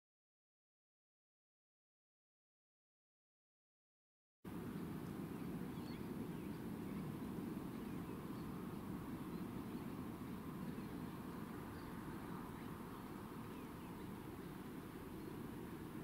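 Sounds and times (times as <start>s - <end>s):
low background rumble: 4.5s - 16.0s
faint bird chirps: 4.7s - 16.0s.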